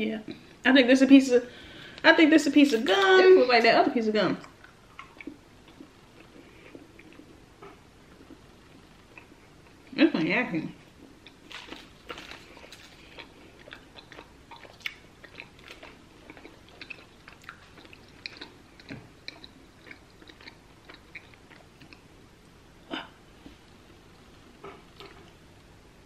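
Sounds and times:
person chewing gum: 0:04.4 - 0:09.9, 0:11.0 - 0:22.1, 0:24.6 - 0:25.4.

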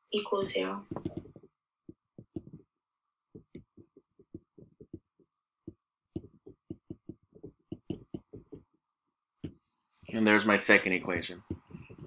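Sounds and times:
stylus tapping on tablet screen: 0:00.4 - 0:02.7, 0:03.3 - 0:08.8, 0:09.4 - 0:09.6, 0:11.4 - 0:12.0.

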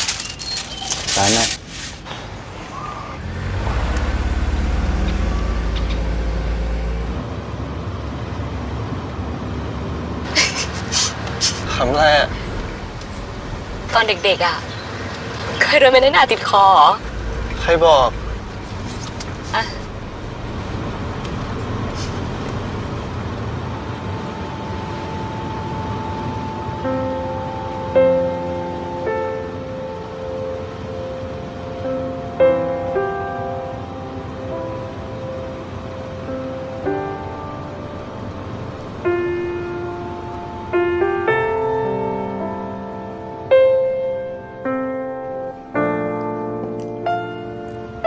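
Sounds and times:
car driving rumble: 0:00.0 - 0:48.0
gentle piano chords: 0:11.6 - 0:48.0.

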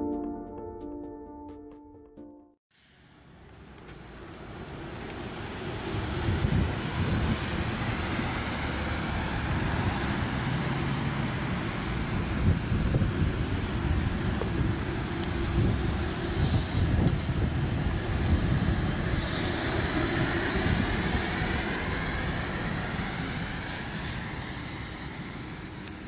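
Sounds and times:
trolleybus pulling away: 0:02.9 - 0:26.0
short air hisses: 0:16.0 - 0:17.1, 0:18.3 - 0:20.0, 0:23.7 - 0:25.6.

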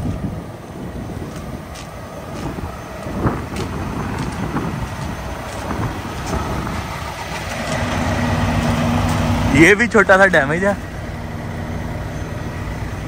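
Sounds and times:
diesel truck engine idling: 0:00.0 - 0:13.0
footsteps in wet slush: 0:01.7 - 0:07.9.

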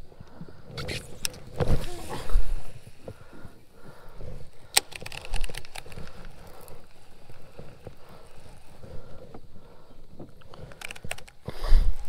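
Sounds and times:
rod and reel rustling: 0:00.7 - 0:12.0
fast crackly reel ticking: 0:04.5 - 0:09.8.

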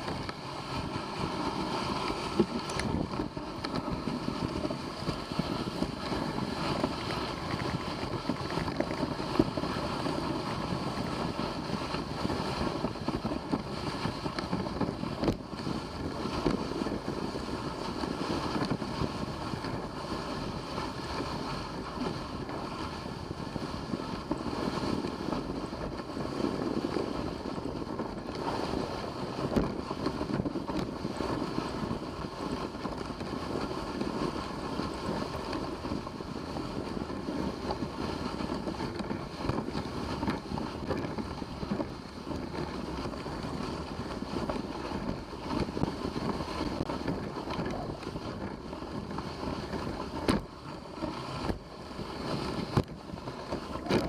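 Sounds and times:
dog sled rushing over snow: 0:00.0 - 0:54.0
wind on microphone: 0:00.0 - 0:54.0.

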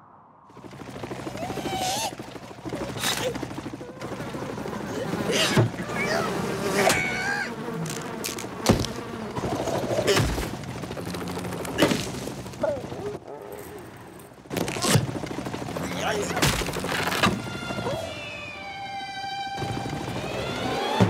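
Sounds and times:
cartoon fly buzzing: 0:03.0 - 0:12.1.

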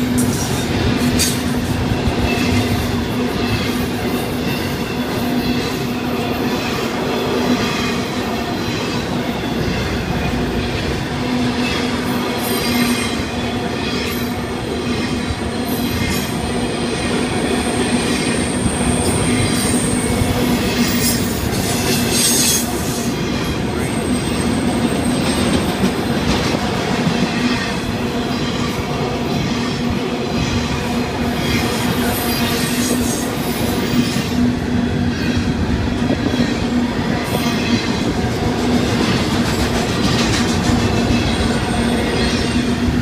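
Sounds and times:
wheels clacking over rail joints: 0:36.0 - 0:42.8.

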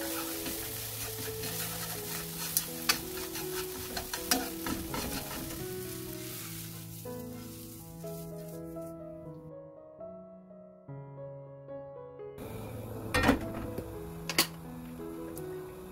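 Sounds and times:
chopsticks tapping a pan: 0:00.0 - 0:05.9
eggs sizzling in a frying pan: 0:00.0 - 0:08.5
soft background music: 0:00.0 - 0:15.9.

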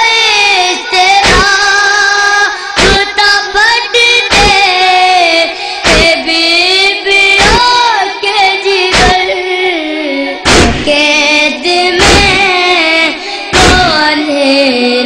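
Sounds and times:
boys chanting in unison: 0:00.0 - 0:09.4, 0:10.3 - 0:15.0
chest-beating thumps: 0:02.8 - 0:03.1, 0:04.3 - 0:04.7, 0:05.8 - 0:06.2, 0:07.4 - 0:07.7, 0:08.9 - 0:09.3, 0:10.5 - 0:11.0, 0:12.0 - 0:12.6, 0:13.5 - 0:14.0.

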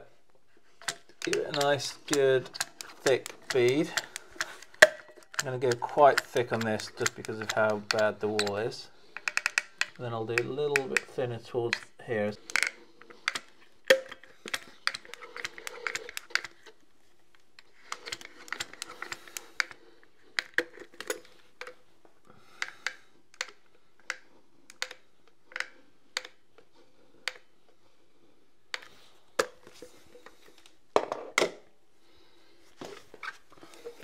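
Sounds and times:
scraping and handling: 0:00.4 - 0:21.8.

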